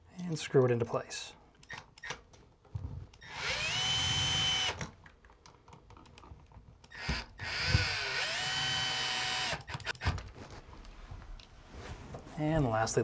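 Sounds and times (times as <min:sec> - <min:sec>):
cordless drill motor whine: 0:03.2 - 0:04.8, 0:06.9 - 0:09.6.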